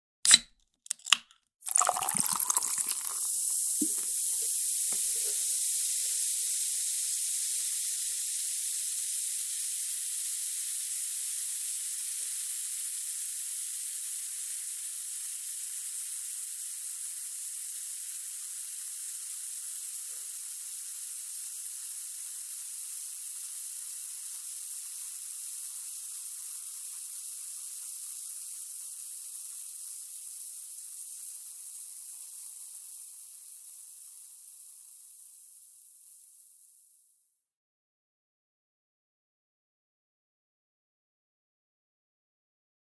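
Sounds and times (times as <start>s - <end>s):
soda can tab cracking open: 0.3s - 5.3s
soda pouring and splashing: 0.3s - 8.0s
fizzing carbonation hiss: 1.0s - 37.1s.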